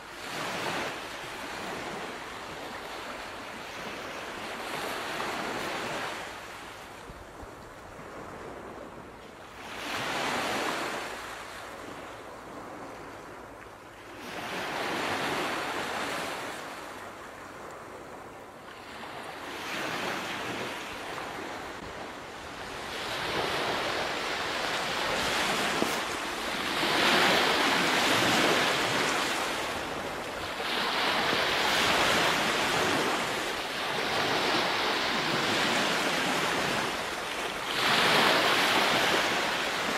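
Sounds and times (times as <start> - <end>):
sea waves breaking: 14.2 - 39.9.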